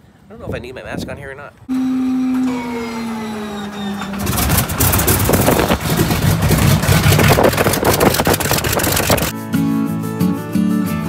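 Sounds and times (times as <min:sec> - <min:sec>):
radial engine running rough: 0:01.7 - 0:09.3
starter motor whine: 0:01.7 - 0:09.3.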